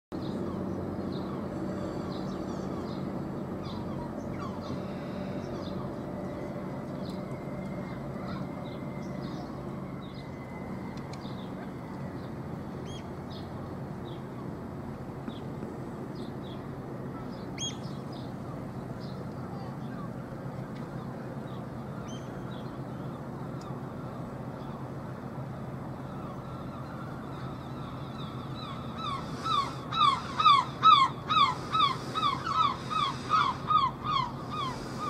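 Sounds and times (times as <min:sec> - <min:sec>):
ship engine drone: 0:00.2 - 0:35.0
birds chirping: 0:25.8 - 0:35.0.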